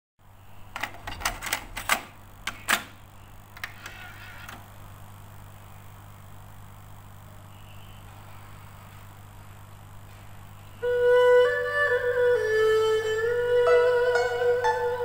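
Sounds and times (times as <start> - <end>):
low hum with hiss: 0.2 - 15.0
cassette deck mechanism clicking: 0.7 - 4.7.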